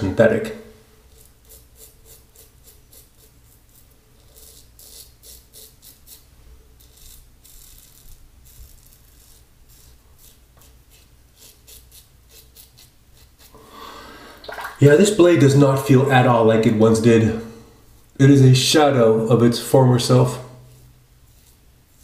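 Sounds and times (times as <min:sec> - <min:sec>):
razor scraping stubble: 0:01.0 - 0:13.6, 0:20.6 - 0:22.0.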